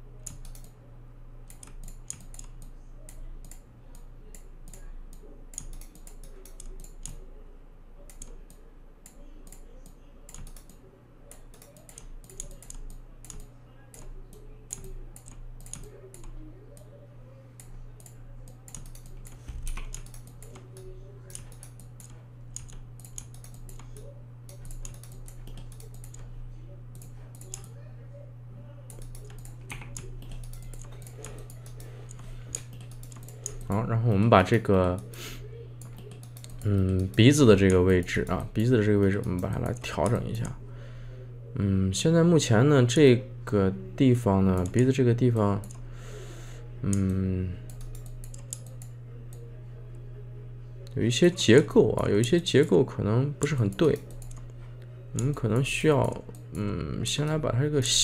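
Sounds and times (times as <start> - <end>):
steady low hum: 0.0 - 58.0
keyboard typing: 0.2 - 0.8, 1.4 - 7.3, 8.0 - 16.9, 17.6 - 27.8, 28.9 - 35.2, 35.8 - 40.6, 46.9 - 49.4, 53.4 - 54.6
mouse clicking: 0.2 - 0.8, 1.4 - 7.3, 8.0 - 16.9, 17.6 - 27.8, 28.9 - 35.2, 35.8 - 40.6, 44.5 - 45.0, 46.9 - 49.4.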